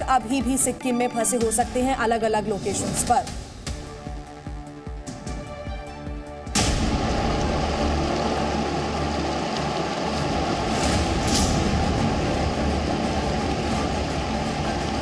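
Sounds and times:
deep rumble of water: 0:06.6 - 0:15.0
river floodwater rushing: 0:06.7 - 0:15.0.

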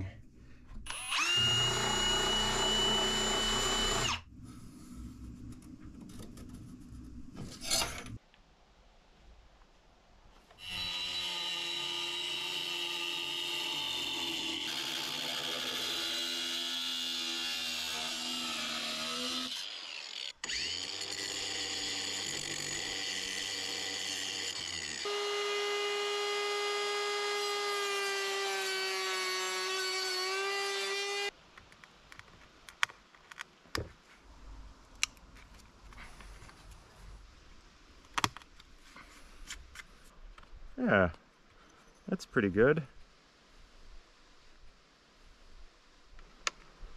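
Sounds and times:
angle grinder cutting metal: 0:00.9 - 0:04.2, 0:10.6 - 0:31.3.

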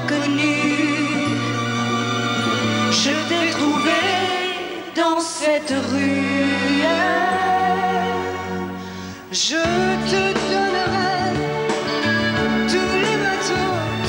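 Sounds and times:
man singing: 0:00.0 - 0:01.4, 0:02.8 - 0:08.4, 0:09.3 - 0:14.0
orchestral accompaniment: 0:00.0 - 0:05.0, 0:09.7 - 0:14.0
singer breath: 0:08.7 - 0:09.3.

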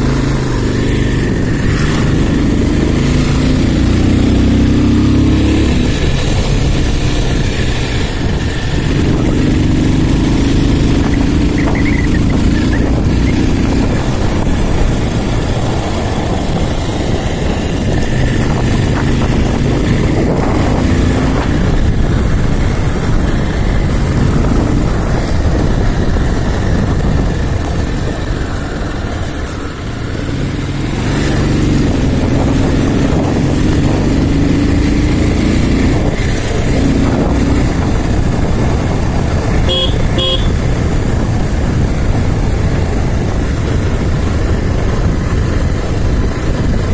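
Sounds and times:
motorcycle engine running: 0:00.0 - 0:46.9
vehicle horn toots: 0:39.6 - 0:40.7.

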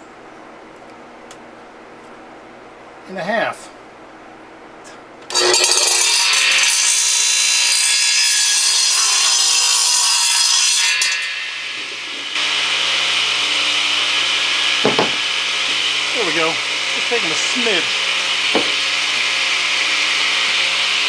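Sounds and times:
radial arm saw cutting board: 0:05.3 - 0:21.0.

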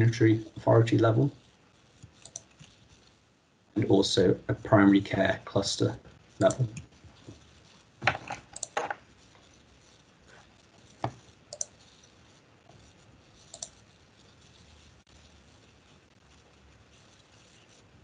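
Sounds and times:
low room background: 0:00.0 - 0:18.0
computer mouse clicking: 0:01.9 - 0:03.1, 0:06.4 - 0:14.9.

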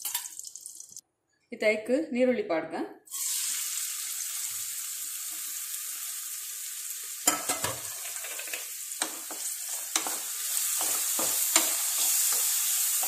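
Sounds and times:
onions sizzling in oil: 0:03.1 - 0:13.0.

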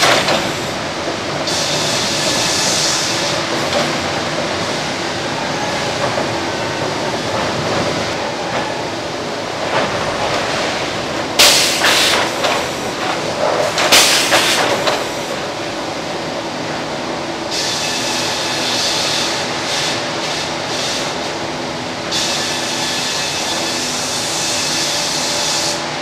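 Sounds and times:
sawmill machinery din: 0:00.0 - 0:15.8.

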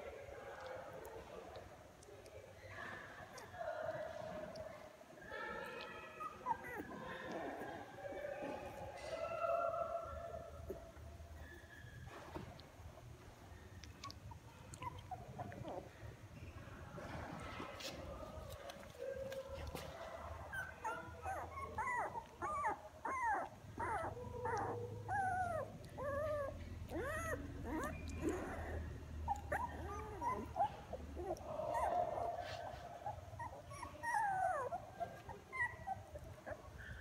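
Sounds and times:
puppies whimpering and squealing: 0:06.1 - 0:08.7, 0:13.8 - 0:16.1, 0:19.0 - 0:37.0.

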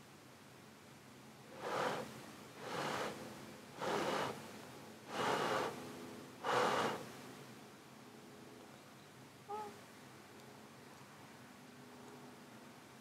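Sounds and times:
person blowing short puffs: 0:01.6 - 0:04.5, 0:05.1 - 0:07.1.

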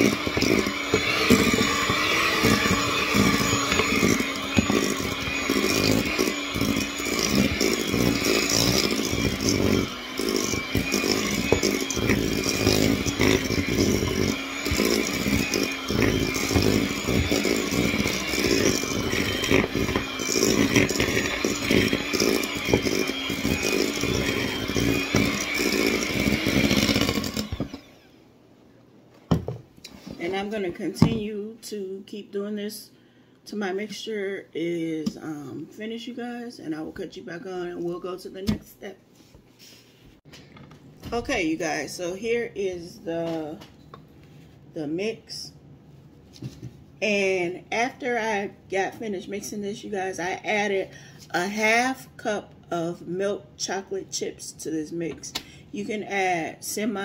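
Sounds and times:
electric hand mixer running: 0:00.0 - 0:28.2.

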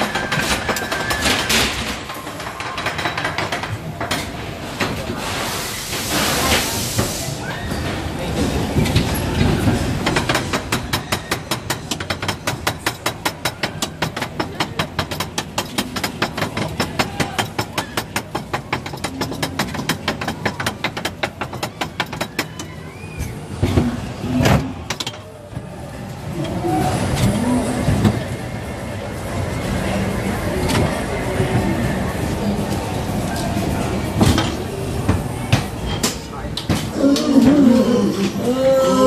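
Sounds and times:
ride car clacking on track: 0:08.6 - 0:22.7.

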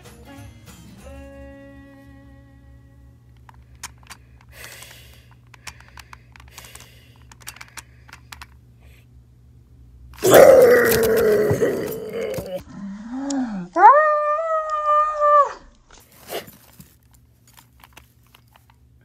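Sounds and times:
plush toys rustling and clicking: 0:03.3 - 0:08.7, 0:10.1 - 0:12.6, 0:15.7 - 0:19.0
loud drawn-out cry: 0:10.2 - 0:12.6.

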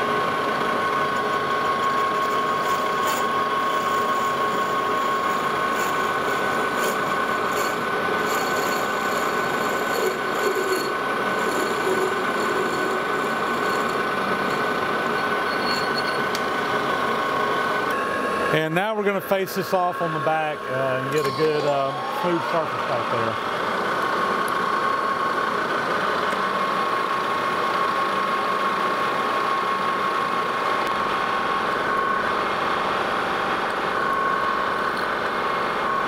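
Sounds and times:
metal lathe whining: 0:00.0 - 0:36.0
cutting tool scraping metal: 0:01.1 - 0:16.4.

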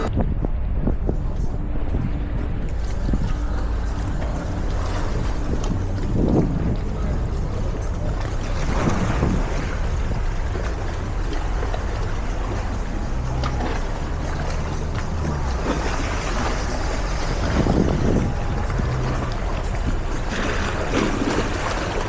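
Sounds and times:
boat engine hum: 0:00.0 - 0:22.0
wind buffeting microphone: 0:00.0 - 0:22.0.

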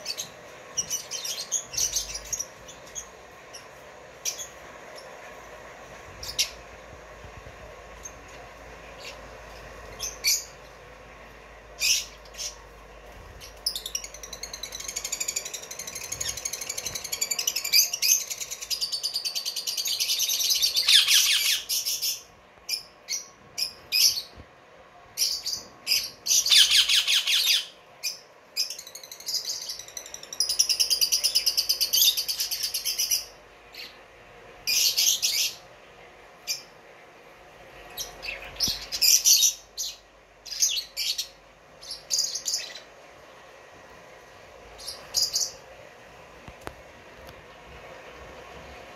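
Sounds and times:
parrots chirping and chattering: 0:00.0 - 0:06.8, 0:07.9 - 0:11.0, 0:11.7 - 0:24.4, 0:25.2 - 0:34.0, 0:34.6 - 0:35.7, 0:37.8 - 0:42.9, 0:44.8 - 0:45.6.

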